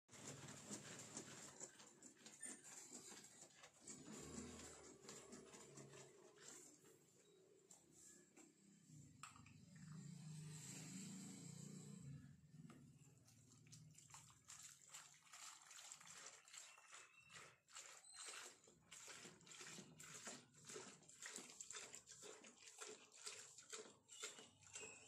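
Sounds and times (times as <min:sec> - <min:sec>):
liquid pouring into bucket: 0:00.1 - 0:07.0, 0:12.7 - 0:25.0
jerrycan glugging: 0:13.2 - 0:25.0.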